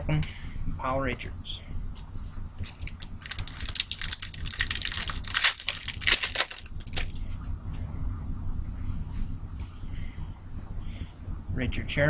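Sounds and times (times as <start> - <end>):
cards rustling: 2.6 - 7.2
foil wrapper crinkling and tearing: 2.6 - 7.2.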